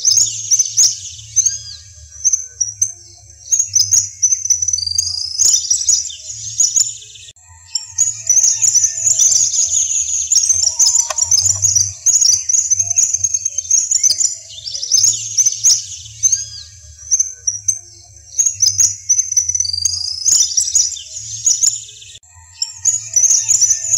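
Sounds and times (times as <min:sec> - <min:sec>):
songbirds twittering: 0:00.0 - 0:23.9
whistled bird note: 0:07.4 - 0:16.9.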